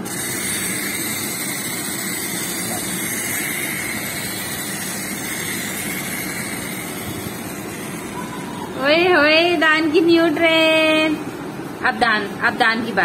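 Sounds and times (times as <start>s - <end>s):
clockwork toy train whirring: 0.0s - 9.1s.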